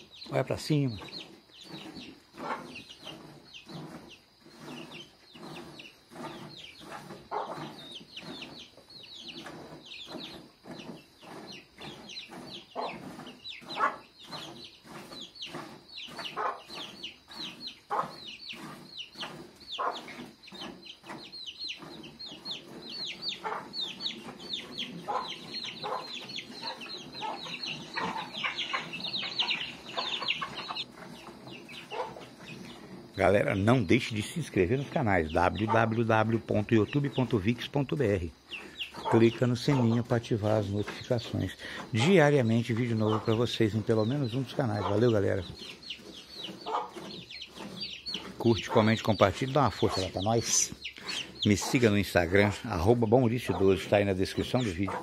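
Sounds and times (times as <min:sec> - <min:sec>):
birds chirping: 0:00.0 - 0:55.0.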